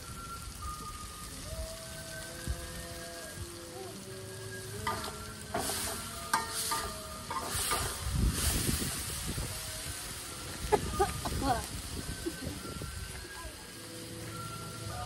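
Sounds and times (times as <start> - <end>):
food sizzling in oil: 0.0 - 15.0
metal spatula scraping wok: 4.8 - 8.7.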